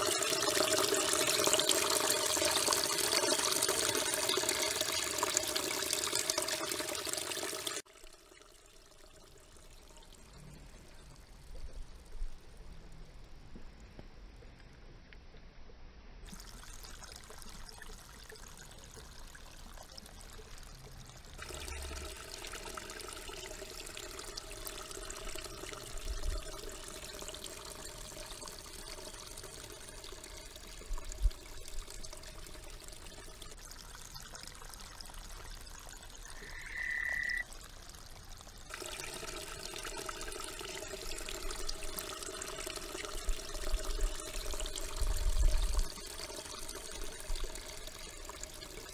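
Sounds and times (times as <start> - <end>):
water trickling and sloshing: 0.0 - 14.8, 16.2 - 48.9
frogs chorus: 36.3 - 37.4.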